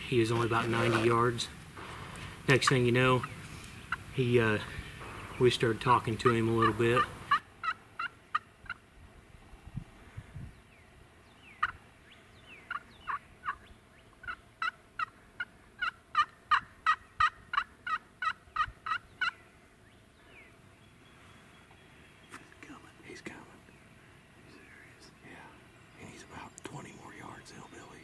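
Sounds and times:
turkey call yelps: 0:06.2 - 0:08.5, 0:15.8 - 0:19.4.

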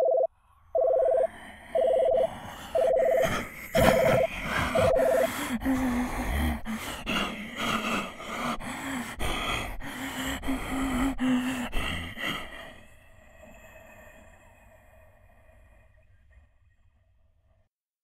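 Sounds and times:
person imitating train with mouth: 0:02.1 - 0:08.5.

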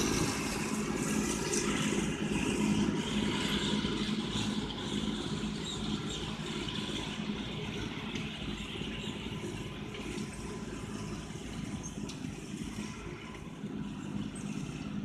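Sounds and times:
tractor running under load: 0:00.0 - 0:15.0.

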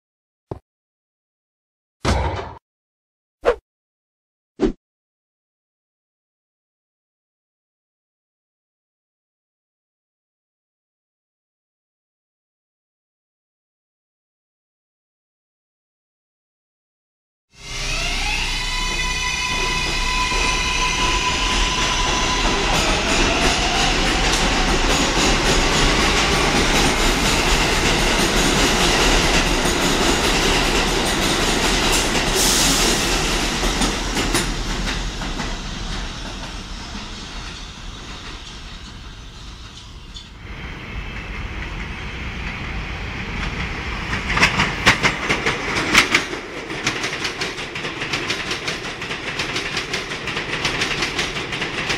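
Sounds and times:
train wheel rumble: 0:18.2 - 0:51.9
train wheels clacking over rail joints: 0:43.4 - 0:51.9.

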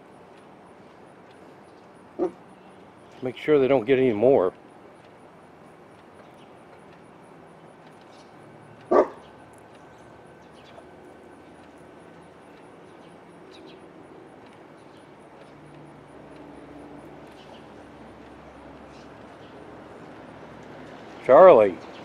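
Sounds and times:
small birds chirping: 0:00.3 - 0:03.4, 0:04.8 - 0:22.0
dog barking: 0:08.9 - 0:09.2.

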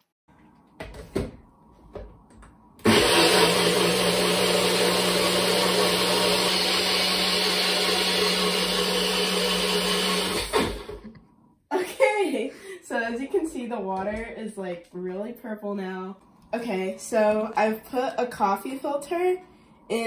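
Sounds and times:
blender motor chopping: 0:02.8 - 0:11.1.

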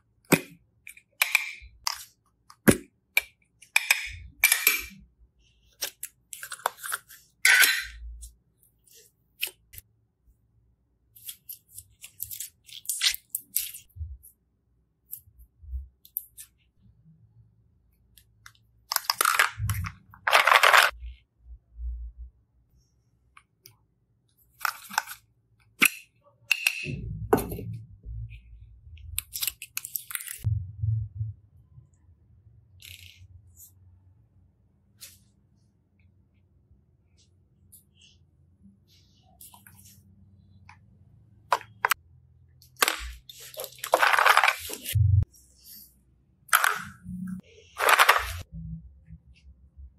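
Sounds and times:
low hum: 0:30.5 - 0:31.9, 0:45.0 - 0:45.2.

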